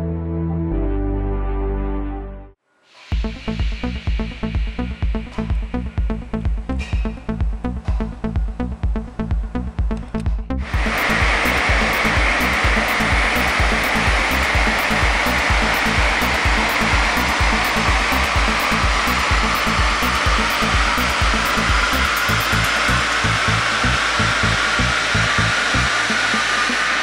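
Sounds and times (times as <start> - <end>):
electronic music with steady beat: 3.1 - 27.0
car engine on dynamometer rushing: 10.6 - 27.0
whine falling in pitch: 10.6 - 27.0.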